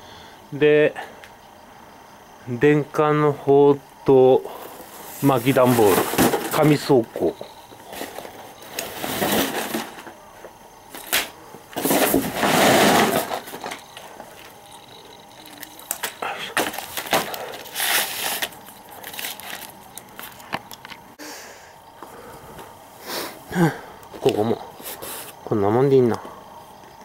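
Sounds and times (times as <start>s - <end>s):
cardboard crinkling and rustling: 5.3s - 10.2s, 11.0s - 20.8s
packing tape ripping: 15.5s - 20.5s.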